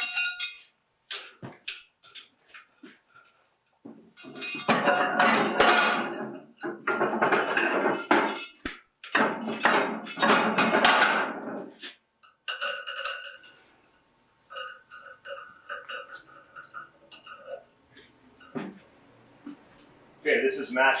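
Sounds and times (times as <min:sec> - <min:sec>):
light metallic clinks: 0:00.0 - 0:11.6, 0:12.2 - 0:18.6
metal weight plates clanking: 0:04.2 - 0:13.7, 0:14.5 - 0:17.8.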